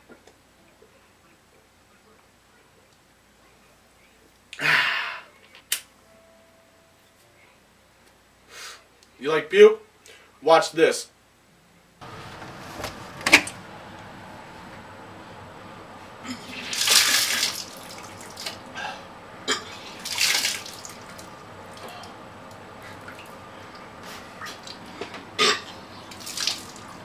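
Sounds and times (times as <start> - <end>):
man vomiting: 4.6 - 5.3
vomit splashing into water: 16.5 - 18.6, 20.0 - 21.2, 26.1 - 26.9.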